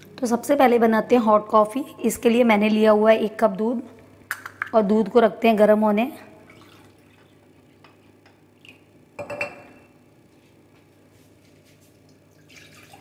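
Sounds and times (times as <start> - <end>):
mug clinking on counter: 9.2 - 9.8.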